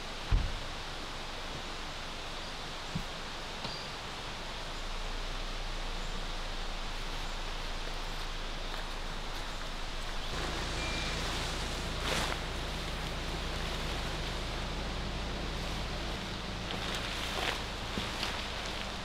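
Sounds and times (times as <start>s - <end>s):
forest ambience rushing noise: 0.0s - 19.0s
short high chirp: 10.7s - 11.5s.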